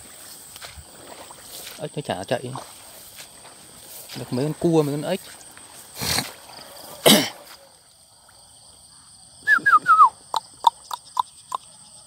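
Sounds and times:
high insect drone: 0.0s - 12.0s
breathy cough-like burst: 7.0s - 7.5s
small animal chirping calls: 10.3s - 11.9s.

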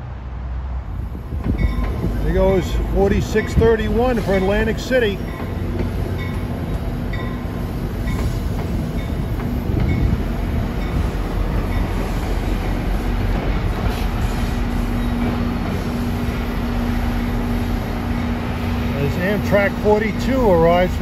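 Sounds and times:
diesel locomotive hum: 0.0s - 21.0s
train wheels rumbling on rail: 0.0s - 21.0s.

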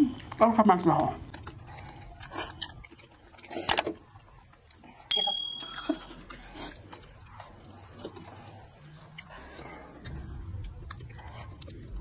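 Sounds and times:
metallic clink on steel: 5.1s - 6.0s.

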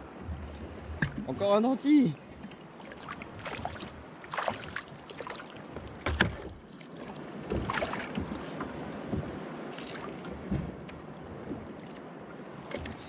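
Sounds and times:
water lapping against hull: 0.0s - 13.0s
fish splashing: 2.8s - 5.6s
knocks on kayak side: 6.0s - 6.5s.

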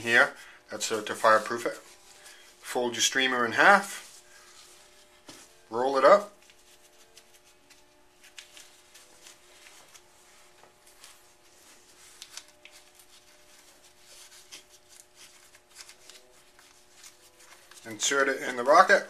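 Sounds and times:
plastic streamer crinkling: 5.9s - 19.0s.

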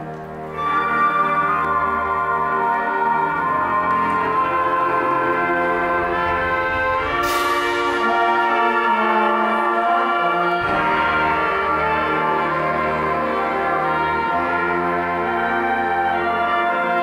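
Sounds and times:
concert band playing chords: 0.0s - 17.0s
cymbal crash: 6.1s - 8.7s.

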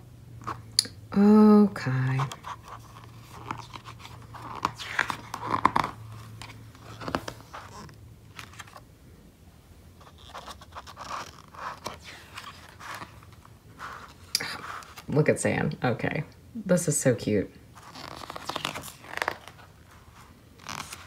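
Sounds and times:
paper pages rustling: 2.0s - 8.9s, 10.0s - 15.2s, 17.7s - 21.0s.

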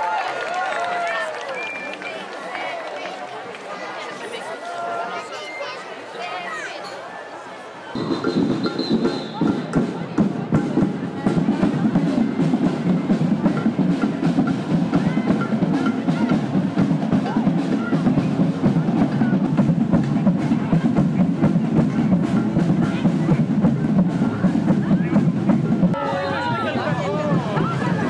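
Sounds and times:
crowd chatter: 0.0s - 28.0s
drums playing a fast beat: 8.0s - 28.0s.

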